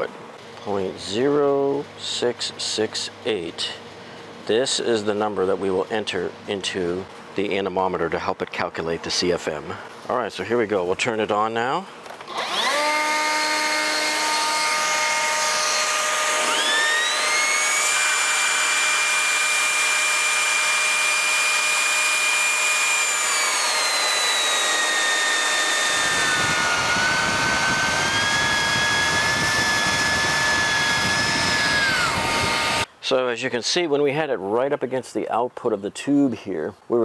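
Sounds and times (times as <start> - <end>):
leaf blower whining: 12.0 - 32.9
anemometer vane spinning whine: 16.4 - 32.9.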